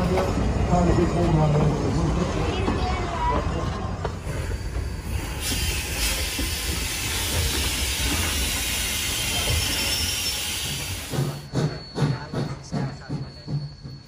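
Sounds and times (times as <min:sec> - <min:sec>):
train running gear rumbling: 0:00.0 - 0:14.0
steam hissing: 0:04.2 - 0:13.0.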